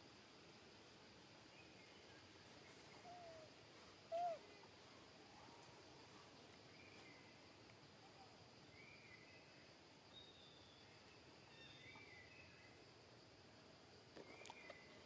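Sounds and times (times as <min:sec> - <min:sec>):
high insect drone: 0:00.0 - 0:15.0
faint high-pitched calls: 0:02.7 - 0:05.8.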